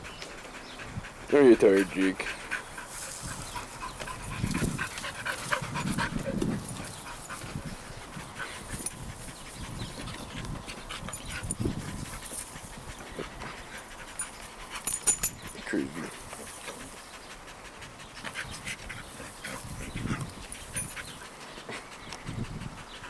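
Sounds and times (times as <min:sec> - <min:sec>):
dog panting: 0:00.0 - 0:23.0.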